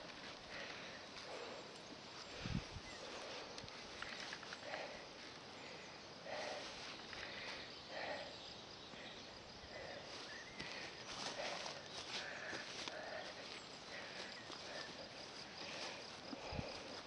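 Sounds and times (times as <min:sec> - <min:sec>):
steady low hiss: 0:00.0 - 0:17.0.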